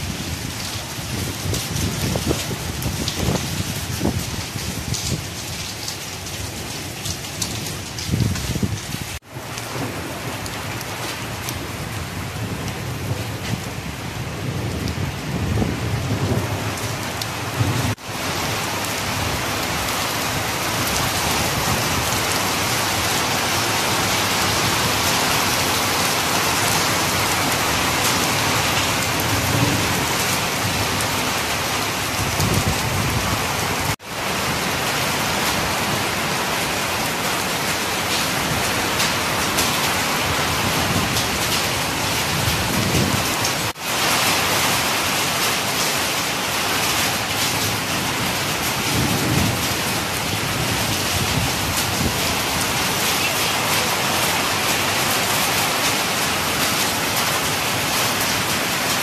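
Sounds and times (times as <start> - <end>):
heavy rain: 0.0 - 59.0
rain splashing on flooded roof: 0.0 - 59.0.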